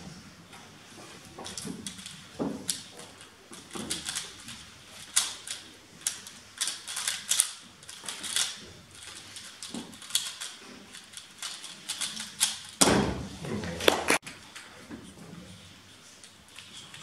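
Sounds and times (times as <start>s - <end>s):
puzzle cube plastic clicking: 3.6s - 12.8s.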